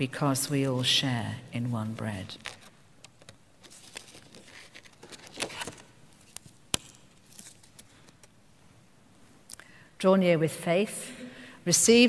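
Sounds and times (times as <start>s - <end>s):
faint clicks and rustles: 2.4s - 8.4s.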